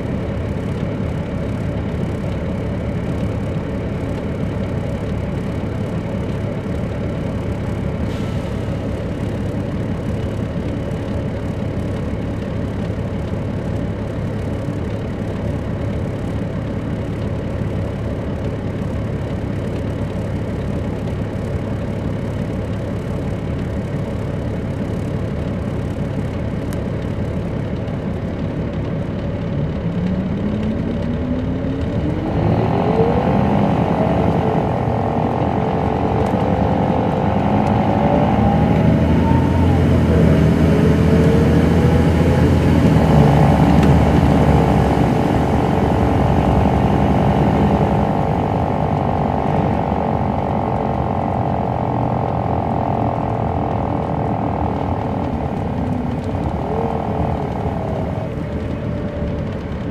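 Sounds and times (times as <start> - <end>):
bus diesel engine: 0.0 - 59.9
whine rising in pitch: 30.1 - 59.9.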